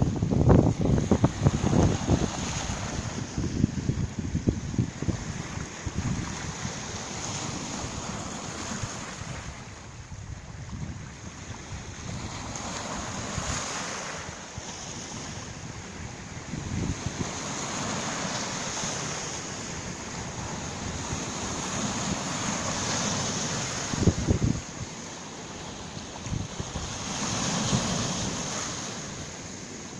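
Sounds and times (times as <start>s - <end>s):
wind gusts buffeting microphone: 0.0s - 29.8s
waves washing over pebble shore: 11.8s - 29.9s.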